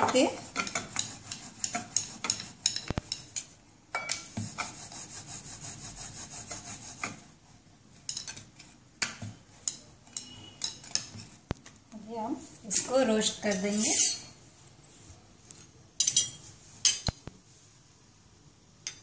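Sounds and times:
rolling pin rolling dough: 0.0s - 11.8s.

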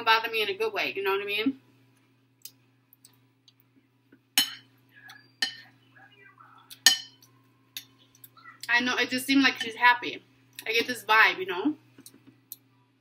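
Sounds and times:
spoon clinking ceramic bowl: 4.4s - 4.7s, 5.4s - 5.7s, 6.8s - 8.0s
soft chewing: 4.8s - 8.7s.

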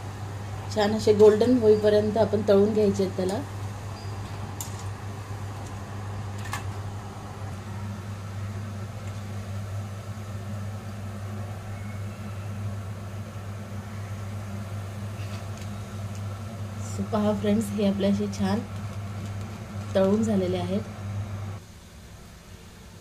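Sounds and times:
low electrical hum: 0.0s - 23.0s.

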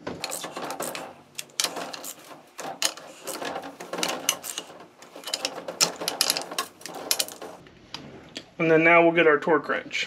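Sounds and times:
hand ratchet clicking: 0.2s - 7.6s.

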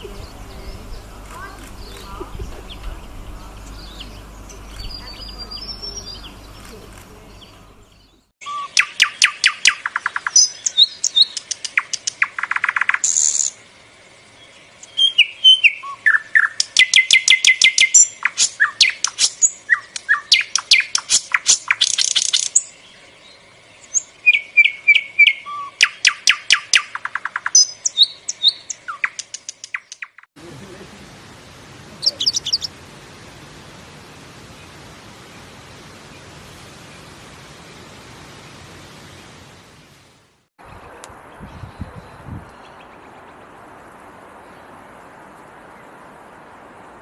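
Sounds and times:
songbird singing trills and whistles: 0.0s - 13.6s, 14.8s - 30.2s.

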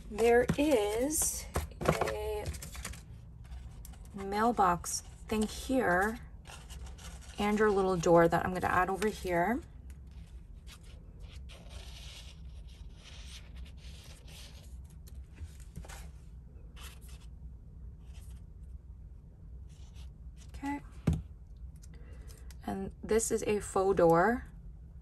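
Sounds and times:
cardstock rustling and scraping: 0.0s - 9.4s.

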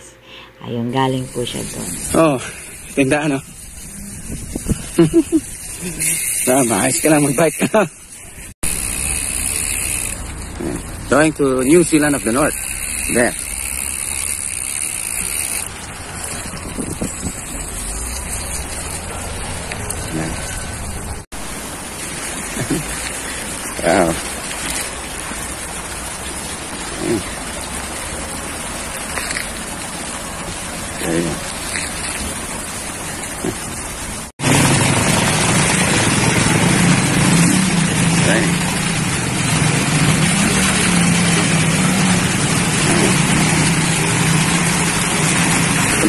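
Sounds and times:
floodwater rushing over gravel: 1.4s - 46.0s
heavy rain hissing: 1.4s - 46.0s
wind rumbling on microphone: 3.4s - 6.0s, 16.2s - 20.0s.

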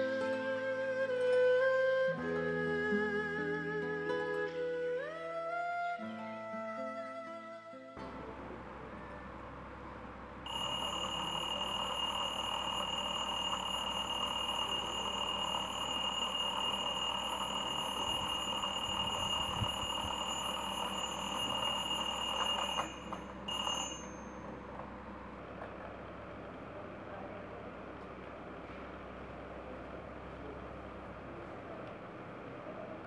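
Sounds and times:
alarm clock beeping: 10.5s - 24.5s.

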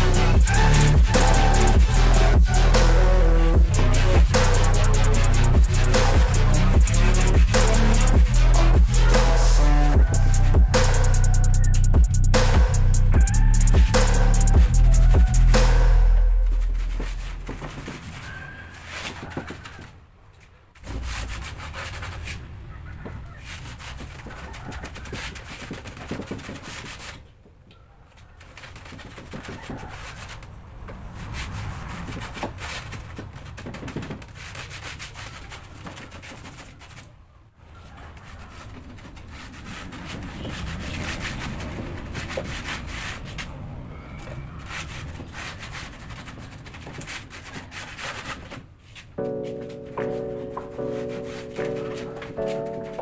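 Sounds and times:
hand tool scraping wood: 0.0s - 27.3s, 28.2s - 37.2s, 37.9s - 53.0s.

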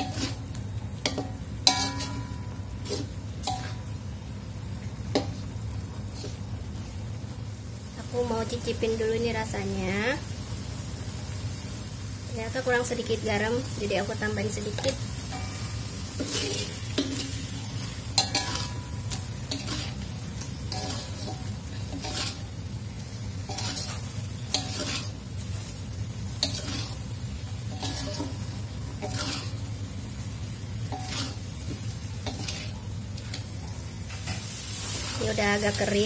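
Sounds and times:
metal spatula scraping wok: 0.0s - 3.8s, 14.2s - 36.0s
sauce and fish sizzling: 0.0s - 36.0s.

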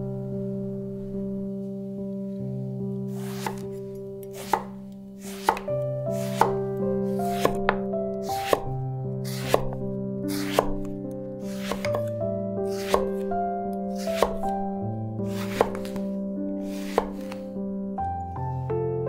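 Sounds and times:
knife slicing eggplant: 3.1s - 10.9s, 11.5s - 12.1s, 12.7s - 13.2s, 13.9s - 14.5s, 15.3s - 16.0s, 16.7s - 17.4s
knife tapping wooden board: 4.4s - 4.8s, 5.4s - 6.6s, 7.4s - 7.8s, 8.4s - 8.7s, 9.3s - 9.8s, 10.4s - 10.9s, 11.6s - 12.1s, 12.8s - 13.2s, 14.2s - 14.5s, 15.5s - 16.0s.

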